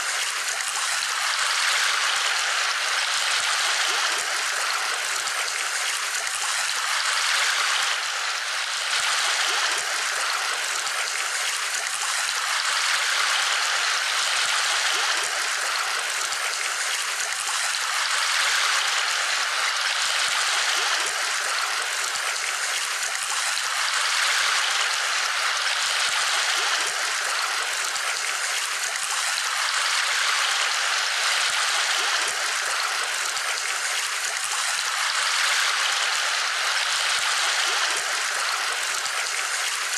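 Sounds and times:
flowing water rushing: 0:00.0 - 0:39.9.

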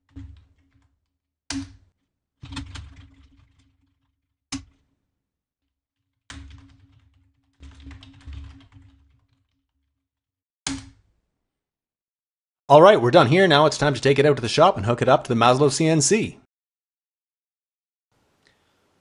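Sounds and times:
computer keyboard typing: 0:02.4 - 0:03.9, 0:06.3 - 0:09.6.

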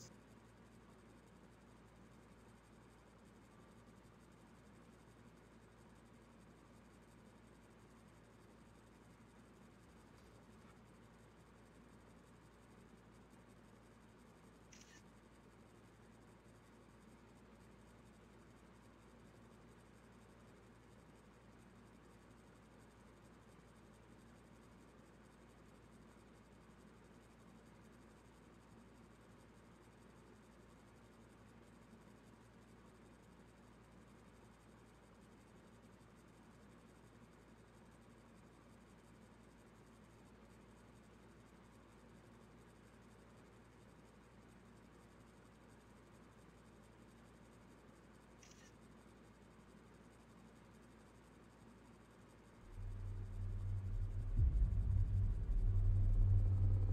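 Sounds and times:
faint steady hiss: 0:00.0 - 0:56.9
low hum: 0:52.6 - 0:56.9
faint high-pitched sound: 0:52.7 - 0:56.9.

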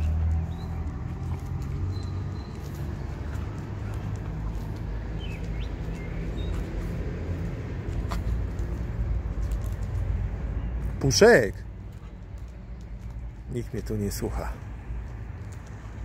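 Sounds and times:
scuffling clicks: 0:00.2 - 0:11.1, 0:11.8 - 0:16.0
dogs growling: 0:00.7 - 0:05.1.

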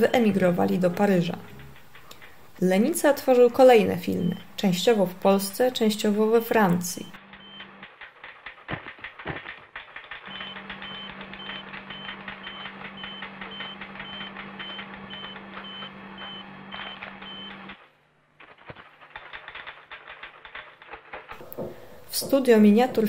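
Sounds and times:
rapid clatter of clicks: 0:00.9 - 0:03.2, 0:07.1 - 0:23.0.

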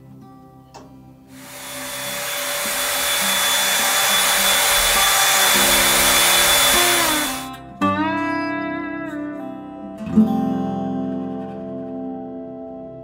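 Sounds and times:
vacuum cleaner running: 0:01.3 - 0:07.6.

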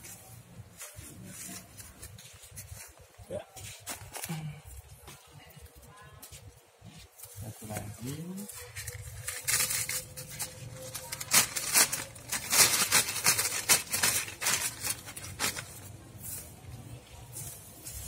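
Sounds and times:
plastic bag crinkling: 0:07.3 - 0:16.2.

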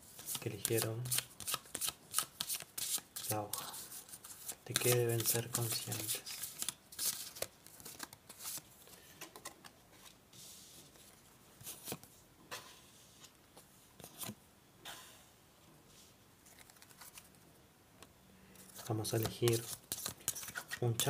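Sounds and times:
cards rustling and clicking: 0:00.2 - 0:10.1, 0:16.4 - 0:17.4, 0:18.6 - 0:21.0.

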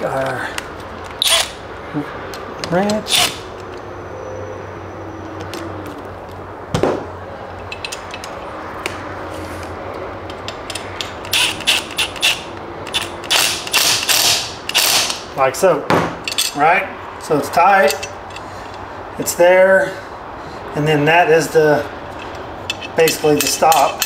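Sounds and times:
wrench clicking on metal: 0:00.2 - 0:01.6, 0:10.2 - 0:15.2, 0:22.2 - 0:24.0.

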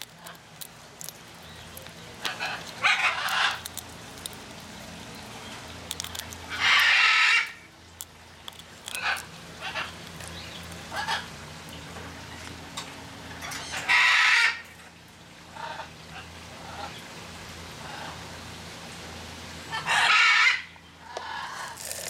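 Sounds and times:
quiet macaw sounds: 0:00.0 - 0:07.7, 0:08.5 - 0:11.4, 0:15.5 - 0:17.0, 0:19.7 - 0:21.8.

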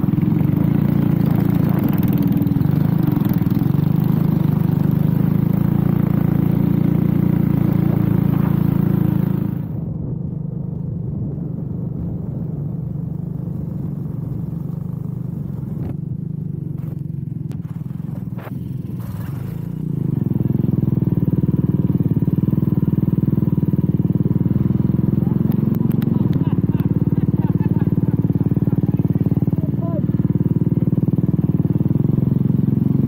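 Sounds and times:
small engine running: 0:00.0 - 0:09.8, 0:14.2 - 0:33.0.

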